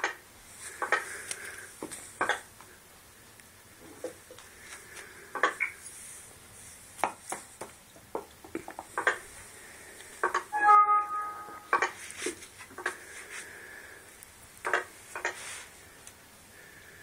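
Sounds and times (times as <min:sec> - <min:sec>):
short ringing tone: 0:10.5 - 0:11.7.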